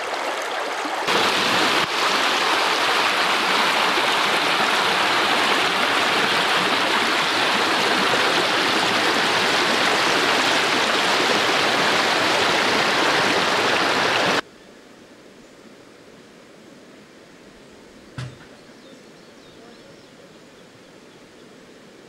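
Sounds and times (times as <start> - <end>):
stream rushing over stones: 0.0 - 14.4.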